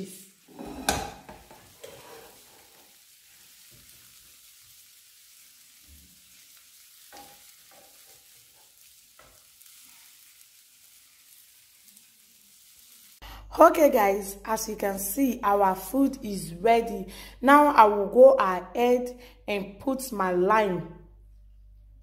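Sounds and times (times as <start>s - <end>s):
prawns sizzling in oil: 0.0s - 13.2s.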